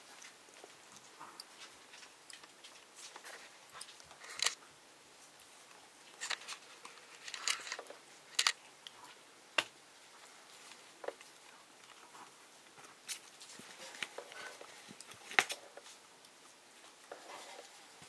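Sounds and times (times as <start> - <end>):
puppies scuffling on blanket: 10.0 - 18.0.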